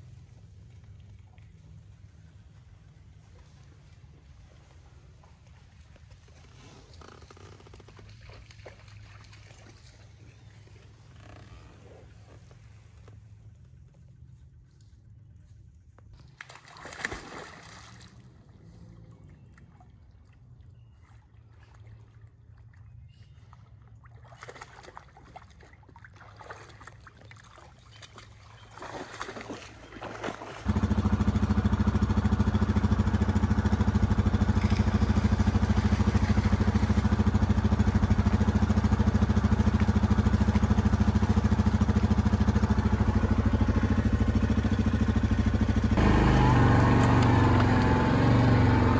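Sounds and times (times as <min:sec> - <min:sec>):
dog splashing through water: 0:07.9 - 0:10.3, 0:16.2 - 0:19.9, 0:23.8 - 0:31.6, 0:33.9 - 0:43.4
atv engine running: 0:10.2 - 0:14.5, 0:28.2 - 0:48.9.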